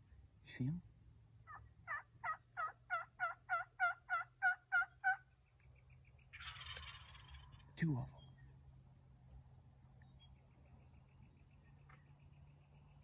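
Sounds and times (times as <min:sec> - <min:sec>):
turkey yelping: 0:01.4 - 0:05.3, 0:06.3 - 0:07.6.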